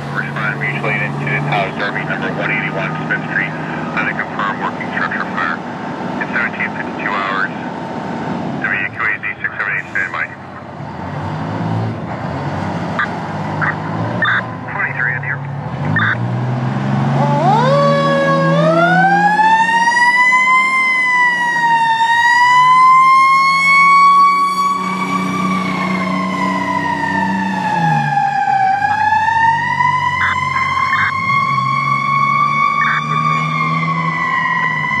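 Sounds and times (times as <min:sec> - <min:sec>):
low engine rumble: 0:00.0 - 0:11.1
fire truck siren wailing: 0:00.0 - 0:12.2, 0:12.8 - 0:35.0.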